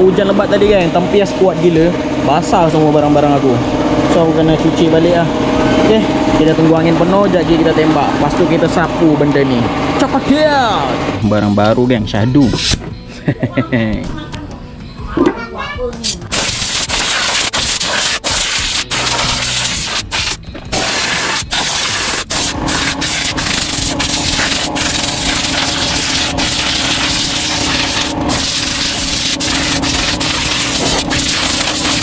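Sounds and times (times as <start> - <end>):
air compressor motor humming: 0.0 - 11.6, 16.3 - 32.0
air blow gun hissing: 12.4 - 12.8, 16.3 - 32.0.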